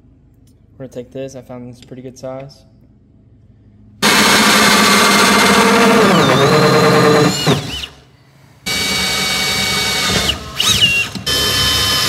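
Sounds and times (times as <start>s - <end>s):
drill motor whine cutting plastic: 4.0s - 8.0s, 8.7s - 12.0s.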